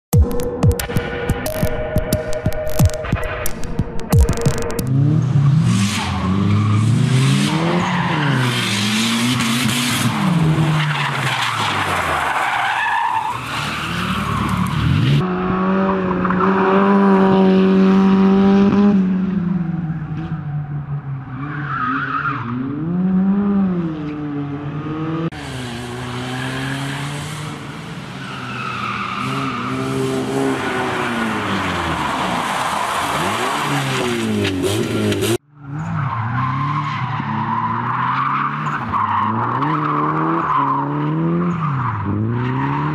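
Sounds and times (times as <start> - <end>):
rally car engines revving: 1.0 - 42.9
tyres squealing and skidding: 5.0 - 15.2, 19.5 - 23.0, 25.4 - 42.9.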